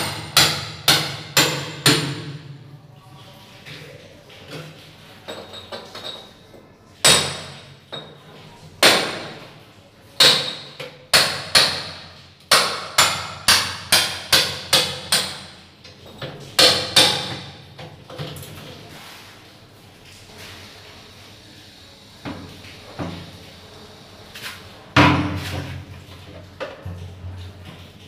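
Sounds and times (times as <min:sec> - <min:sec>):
hammer striking tiled wall: 0:00.0 - 0:02.5, 0:07.0 - 0:08.2, 0:08.8 - 0:09.6, 0:10.2 - 0:15.6, 0:16.2 - 0:18.3, 0:25.0 - 0:25.9.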